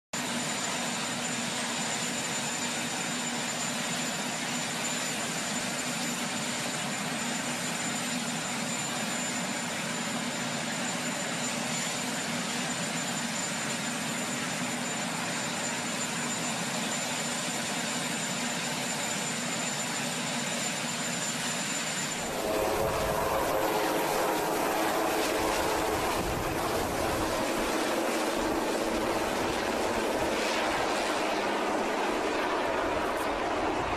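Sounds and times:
helicopter turbine noise: 0:00.2 - 0:33.9.

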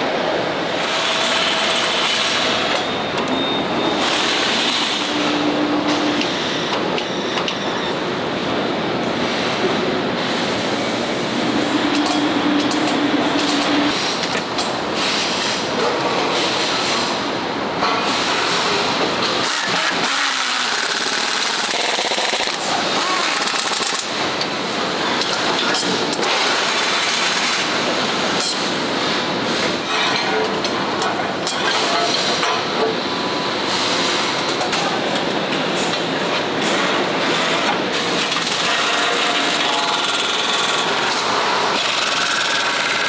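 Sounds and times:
continuous factory din: 0:00.0 - 0:43.0
pneumatic tools rattling: 0:18.0 - 0:24.2, 0:36.6 - 0:43.0.

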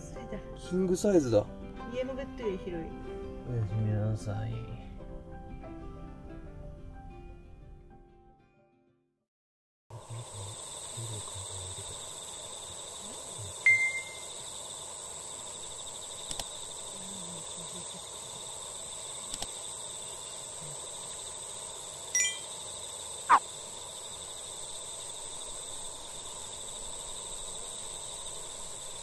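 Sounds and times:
high-pitched insect chorus: 0:09.9 - 0:29.0
faint clicks: 0:16.2 - 0:16.6, 0:19.3 - 0:19.6.

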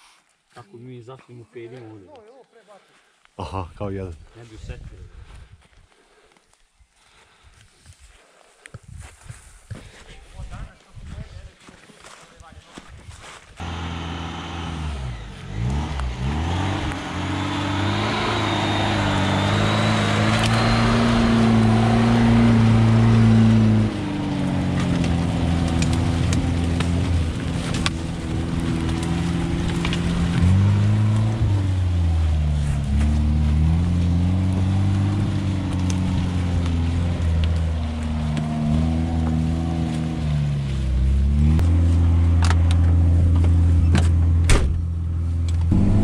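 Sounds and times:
car engine revving under load: 0:13.6 - 0:46.0.

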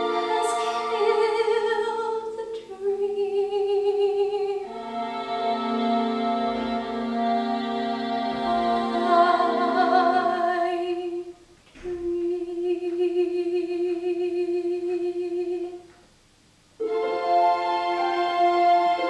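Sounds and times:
girl singing a ballad: 0:00.0 - 0:04.7
music: 0:00.0 - 0:16.0, 0:16.8 - 0:19.0.

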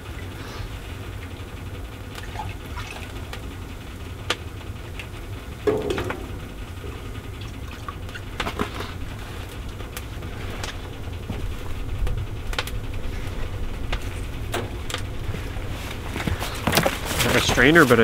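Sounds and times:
evaporator fire rumbling: 0:00.0 - 0:18.0
metal and wood knocks: 0:05.6 - 0:08.7.

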